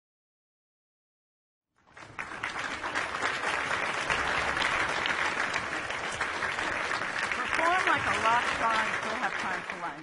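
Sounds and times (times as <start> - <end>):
audience applauding: 1.8 - 10.0.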